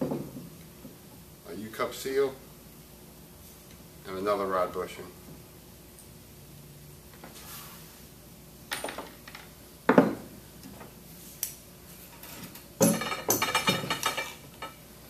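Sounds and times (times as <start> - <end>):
metal parts knocking on workbench: 12.8 - 14.8.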